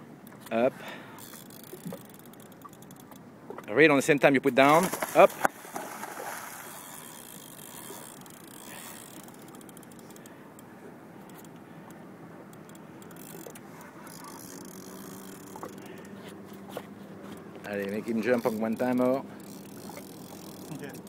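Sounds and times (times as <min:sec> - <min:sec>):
fishing reel clicking: 0:01.2 - 0:03.2, 0:06.7 - 0:10.7, 0:12.5 - 0:16.2, 0:17.8 - 0:21.0.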